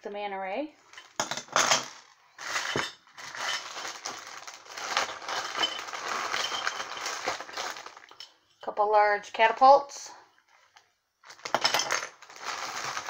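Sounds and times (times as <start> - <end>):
plastic bag crinkling: 1.8 - 8.4, 11.2 - 13.0.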